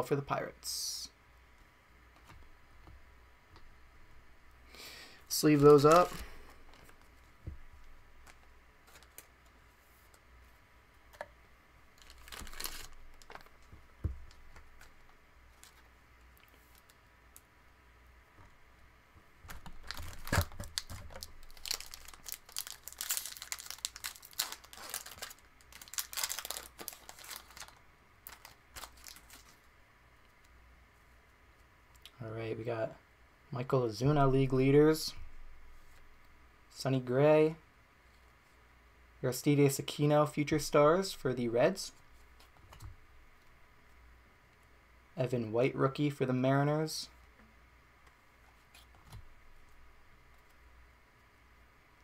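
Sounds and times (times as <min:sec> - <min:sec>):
thin plastic crinkling: 0:07.8 - 0:10.2, 0:11.9 - 0:17.4, 0:19.5 - 0:29.7.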